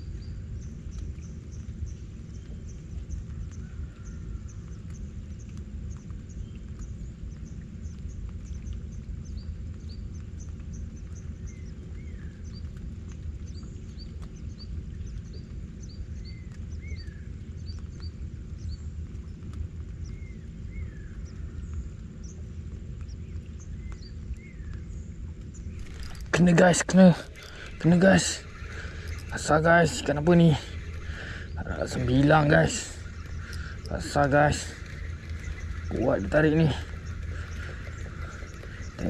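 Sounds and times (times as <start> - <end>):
birds chirping: 0.0 - 39.0
steady low rumble: 0.0 - 39.0.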